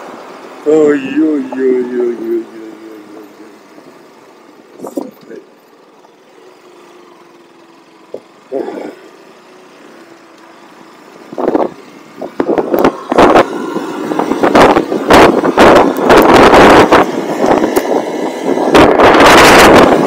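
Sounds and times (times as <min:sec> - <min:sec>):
motorcycle running at low speed: 0:00.0 - 0:20.0
wind buffeting microphone: 0:11.3 - 0:20.0.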